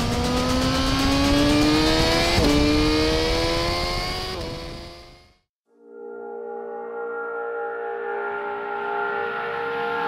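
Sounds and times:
motorcycle engine accelerating: 0:00.0 - 0:05.5.

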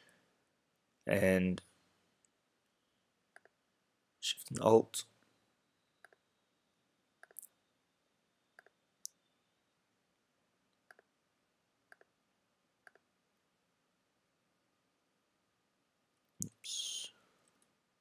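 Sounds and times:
computer mouse clicks: 0:07.2 - 0:07.5, 0:10.8 - 0:11.1, 0:12.8 - 0:13.0.

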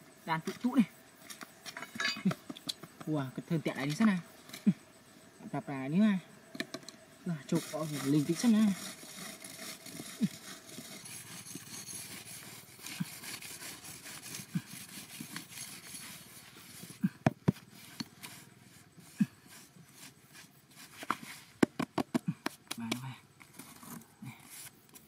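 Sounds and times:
metal blade scraping dry dirt: 0:00.3 - 0:02.8, 0:07.4 - 0:21.6, 0:23.4 - 0:25.0
hands brushing soil: 0:07.4 - 0:21.7.

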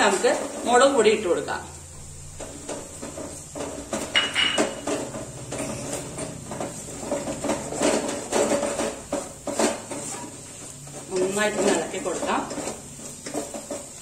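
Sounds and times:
spatula scraping a pot: 0:02.4 - 0:14.0
pot ringing: 0:04.1 - 0:04.9.

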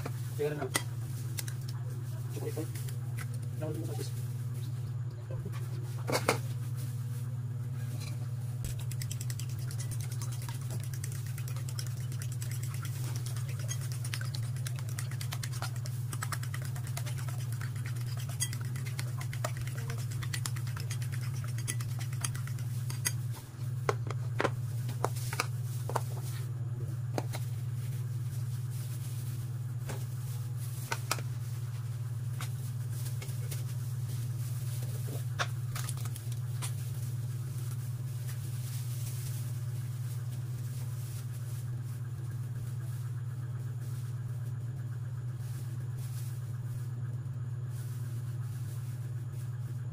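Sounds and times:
steady low hum: 0:00.0 - 0:49.9
fork beating eggs in a bowl: 0:01.3 - 0:01.8, 0:08.6 - 0:24.0, 0:35.7 - 0:36.8.

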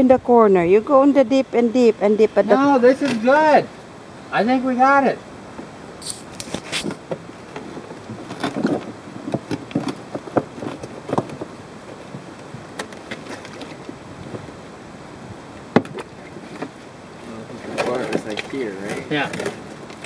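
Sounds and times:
plastic box and liner handling: 0:06.0 - 0:14.6, 0:17.4 - 0:20.0.

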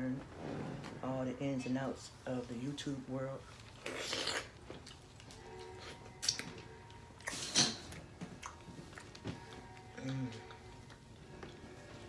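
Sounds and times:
wet mouth noises: 0:03.7 - 0:06.5, 0:07.2 - 0:09.1.

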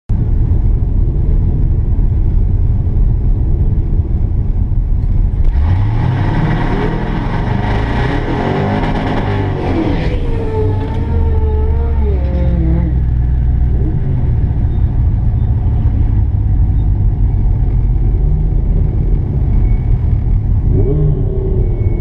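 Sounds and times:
engine revving: 0:05.4 - 0:14.8
engine idling with deep rumble: 0:09.9 - 0:22.0.

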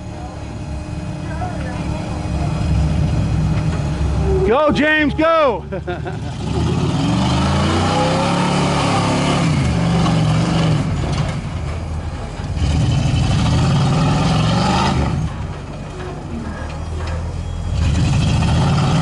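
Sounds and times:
buggy engine revving hard: 0:05.8 - 0:11.4, 0:12.5 - 0:15.5, 0:17.7 - 0:19.0.

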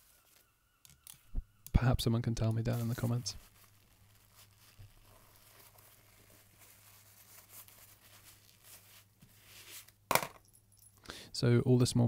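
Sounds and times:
paper towel rustling on metal: 0:02.4 - 0:10.0.

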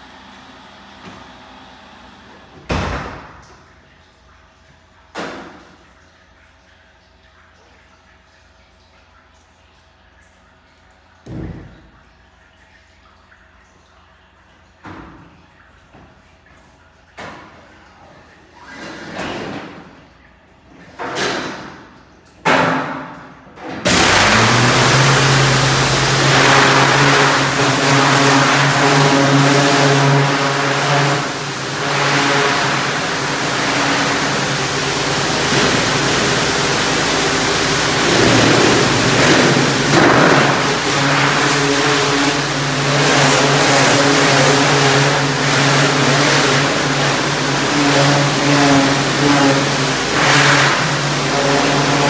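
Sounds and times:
steady machine hum: 0:00.0 - 0:03.1, 0:23.8 - 0:52.0.

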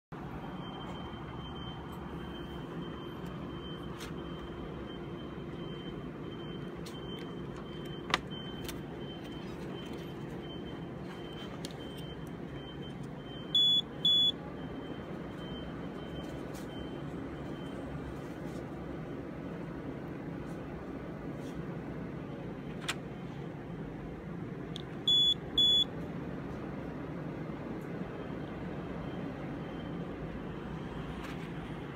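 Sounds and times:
cooling fans humming: 0:00.1 - 0:31.9
short electronic beeps: 0:00.4 - 0:17.9, 0:25.1 - 0:25.9.

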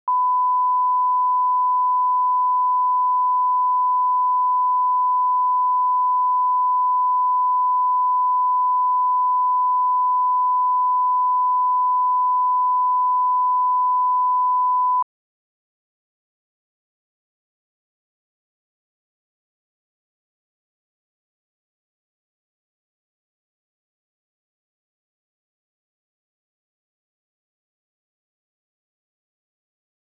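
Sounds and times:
steady test tone beep: 0:00.1 - 0:15.1.

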